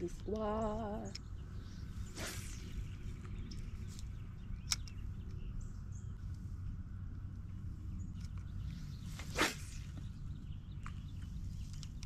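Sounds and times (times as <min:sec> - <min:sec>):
steady low rumble: 0:00.0 - 0:12.0
swishing rustle: 0:01.8 - 0:03.2, 0:08.8 - 0:10.2
sharp click: 0:04.0 - 0:05.0.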